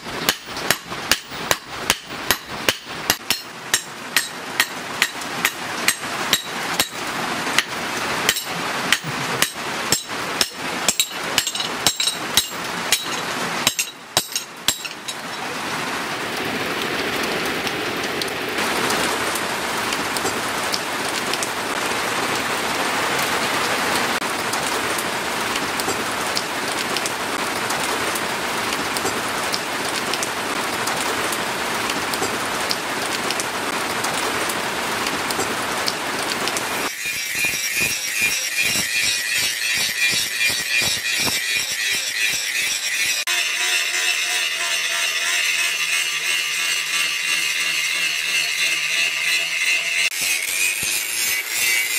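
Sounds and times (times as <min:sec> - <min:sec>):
steady rain-like hiss: 0:00.0 - 0:37.5
hammer striking metal on anvil: 0:00.3 - 0:07.0, 0:08.3 - 0:15.2.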